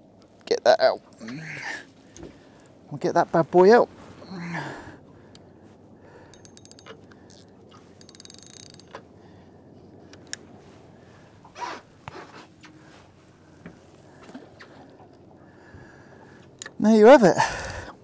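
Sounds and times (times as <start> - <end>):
fishing reel clicking: 6.3 - 9.0, 10.1 - 10.4, 16.6 - 17.9.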